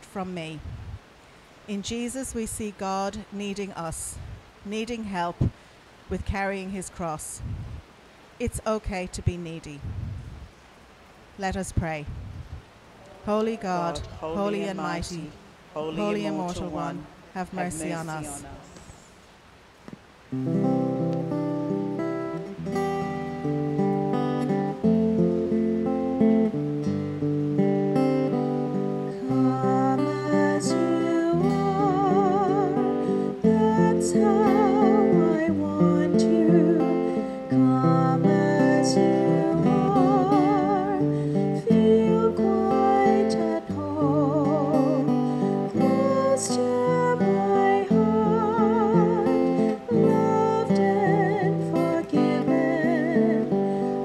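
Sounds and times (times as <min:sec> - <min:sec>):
acoustic guitar chords: 0:13.3 - 0:18.5, 0:20.3 - 0:54.0
person singing with vibrato: 0:13.4 - 0:18.6, 0:29.1 - 0:54.0.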